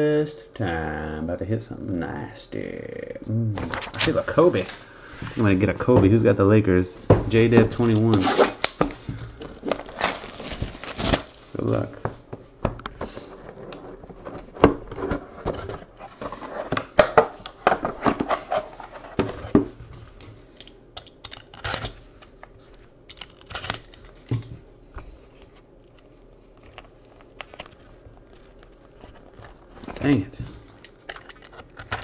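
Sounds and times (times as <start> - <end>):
trading cards clicking and rustling: 7.3 - 11.9, 20.1 - 24.6, 25.4 - 32.0.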